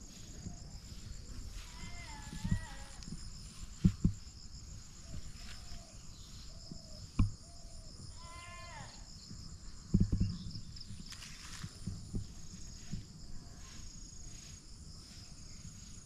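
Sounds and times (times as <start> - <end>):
high insect chirring: 0.0 - 16.0.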